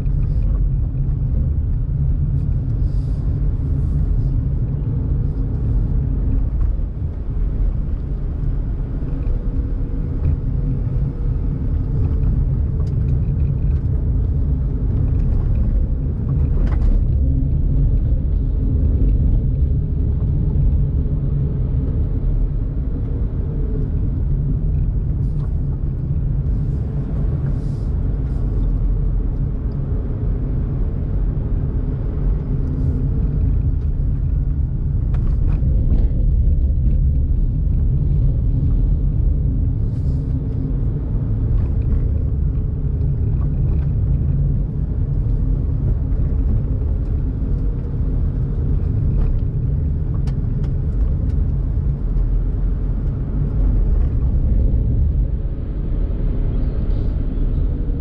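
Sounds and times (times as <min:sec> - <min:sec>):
road and tyre noise: 0:00.0 - 0:58.0.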